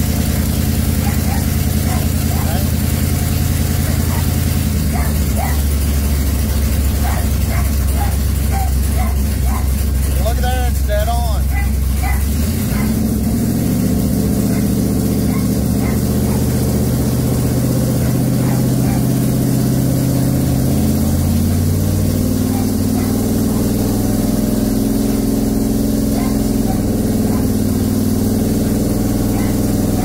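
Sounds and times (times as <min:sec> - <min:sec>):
car engine running: 0:00.0 - 0:30.0.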